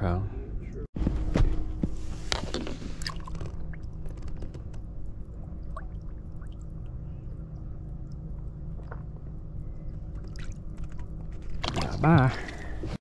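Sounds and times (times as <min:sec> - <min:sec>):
low rumble: 0:00.0 - 0:13.0
water splashing and dripping: 0:05.6 - 0:09.1.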